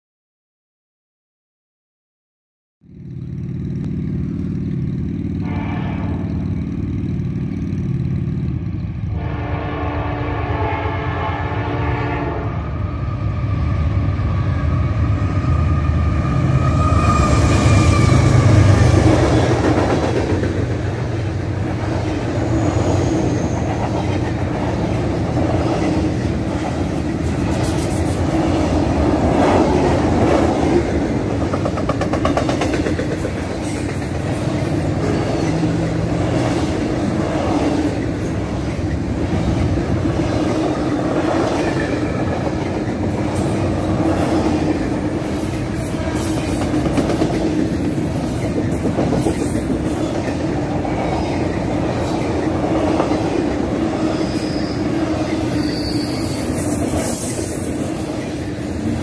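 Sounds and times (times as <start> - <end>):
locomotive engine rumble: 2.9 - 11.3
train horn blasts: 5.4 - 6.6, 9.1 - 13.4, 14.3 - 19.1
train wheels clattering: 17.2 - 59.0.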